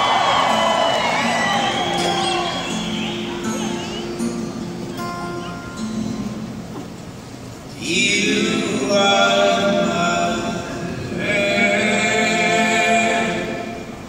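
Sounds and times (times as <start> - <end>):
voices singing without instruments: 0.0 - 4.3, 7.7 - 14.0.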